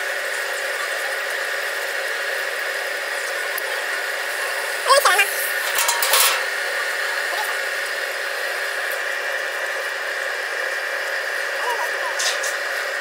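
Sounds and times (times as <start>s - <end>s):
rolling machine humming: 0.0s - 13.0s
metallic clatter: 5.6s - 6.6s.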